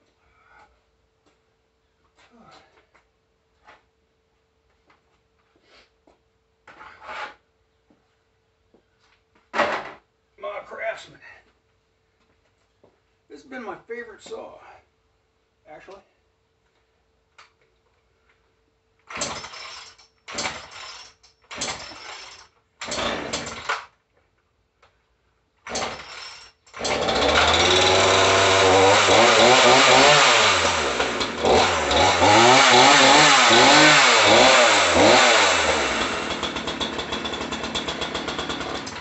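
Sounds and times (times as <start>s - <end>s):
chainsaw starter cord pulls: 19.0s - 23.9s, 25.6s - 39.0s
chainsaw engine revving: 19.1s - 23.9s, 25.7s - 39.0s.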